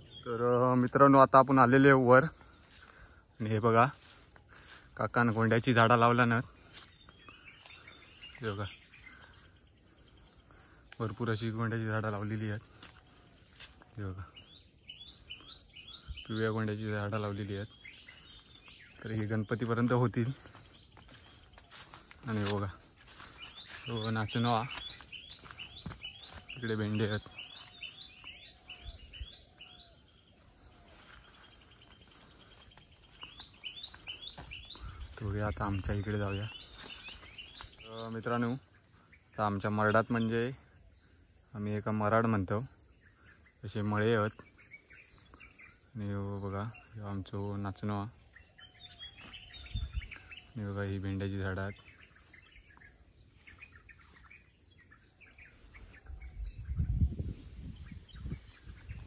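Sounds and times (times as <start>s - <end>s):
birds chirping: 0.0s - 59.0s
faint outdoor ambience: 0.0s - 59.0s
low rumbling on microphone: 56.0s - 59.0s.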